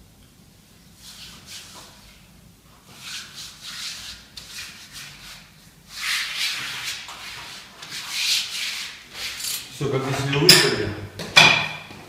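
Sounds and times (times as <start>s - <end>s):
hands rubbing wallpaper: 1.0s - 2.2s, 2.8s - 10.3s.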